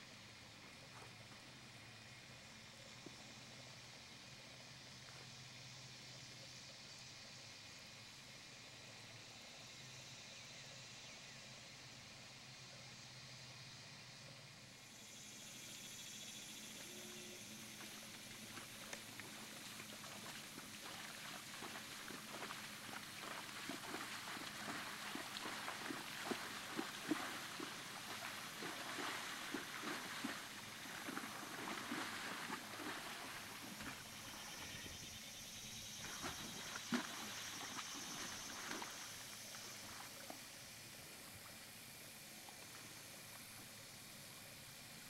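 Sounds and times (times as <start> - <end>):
hooves splashing through water: 17.3 - 35.2, 35.8 - 41.6.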